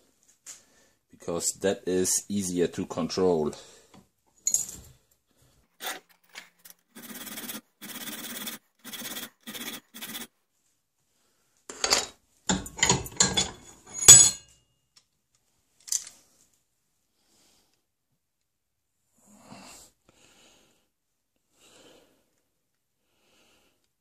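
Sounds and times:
file rasping on steel: 5.8s - 10.3s
sharp metallic clanks: 12.5s - 14.5s.

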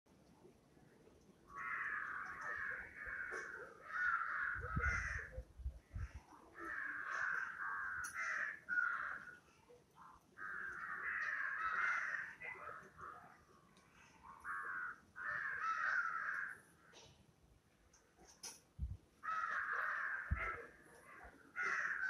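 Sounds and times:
crows cawing: 1.5s - 9.6s, 10.4s - 13.2s, 14.3s - 17.1s, 19.2s - 22.0s.

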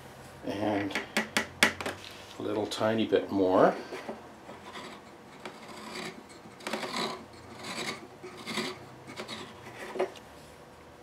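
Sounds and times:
hand reamer scraping wood: 3.8s - 10.1s.

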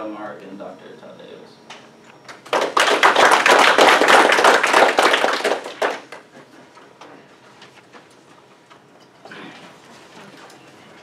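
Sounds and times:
audience applauding: 2.4s - 6.3s.

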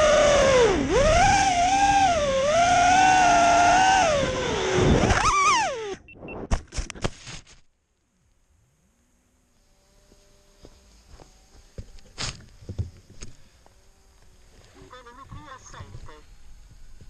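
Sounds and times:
drone motors whining: 0.0s - 6.5s, 8.4s - 17.0s
drone tumbling knocks: 11.6s - 13.4s.

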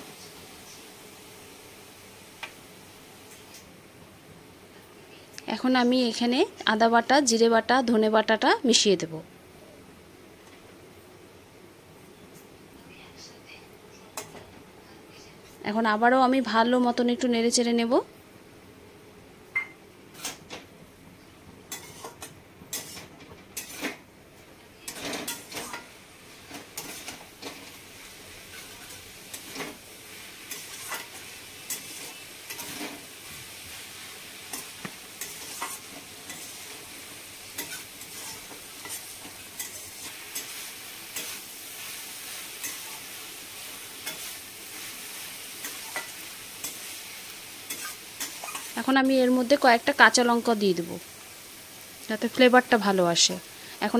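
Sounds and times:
frying sizzle: 0.0s - 12.6s, 13.8s - 53.9s
metal spatula scraping a pan: 21.7s - 24.0s, 24.8s - 25.9s, 30.5s - 33.1s, 34.5s - 36.8s, 37.5s - 43.1s, 44.0s - 46.9s, 47.6s - 48.8s.

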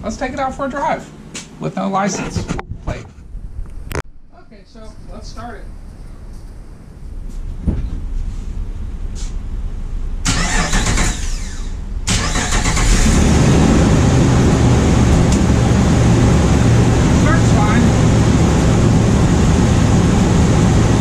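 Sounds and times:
car engine running loudly: 10.2s - 21.0s
starter motor cranking: 10.3s - 13.2s.

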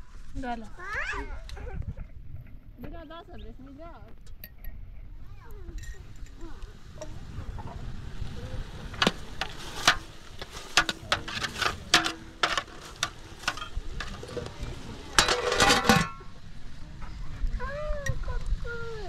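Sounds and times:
sharp clicks and knocks: 8.9s - 14.6s.

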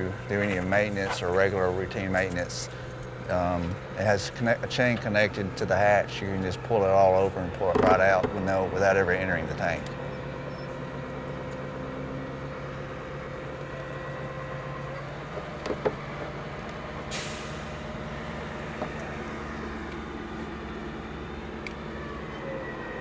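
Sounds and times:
crane engine running: 0.0s - 23.0s
short hiss: 17.1s - 17.7s.

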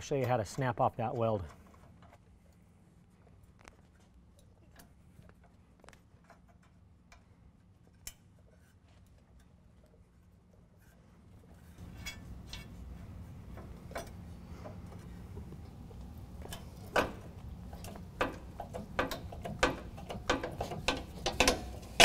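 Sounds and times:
metal creaking and clicking: 0.0s - 2.6s, 10.8s - 22.0s.

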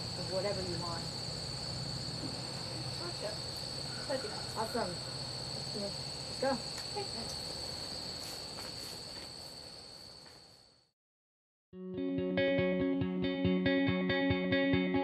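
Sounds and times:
high-pitched insect chorus: 0.0s - 10.9s.

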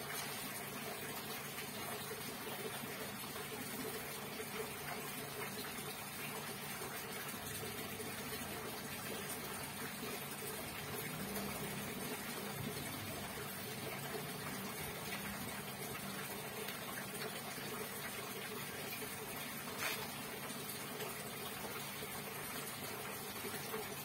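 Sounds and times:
liquid pouring into plastic bucket: 19.0s - 20.8s
liquid sloshing and splashing: 19.6s - 20.7s.

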